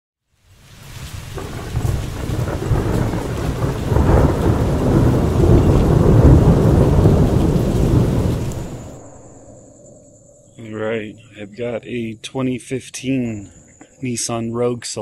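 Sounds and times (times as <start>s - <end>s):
rain: 0.2s - 9.4s
deep rumble of thunder: 0.9s - 11.3s.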